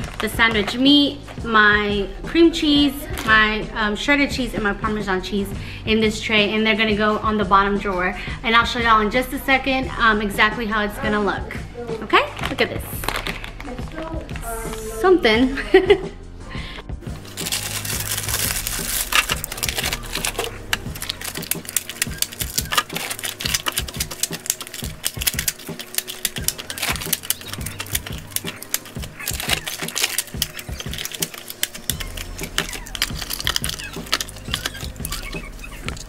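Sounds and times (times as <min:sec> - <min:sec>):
packaged snacks clattering into plastic bin: 0:12.4 - 0:14.0, 0:17.2 - 0:36.0.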